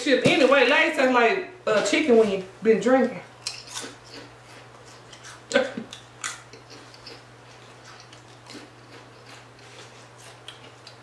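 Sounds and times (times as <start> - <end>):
potato chips being chewed: 3.4 - 11.0.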